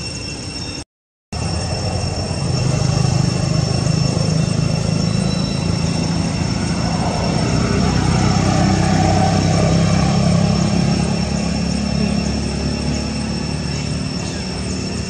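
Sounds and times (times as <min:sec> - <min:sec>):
high-pitched tones: 0:01.4 - 0:15.0
low engine drone: 0:01.4 - 0:15.0.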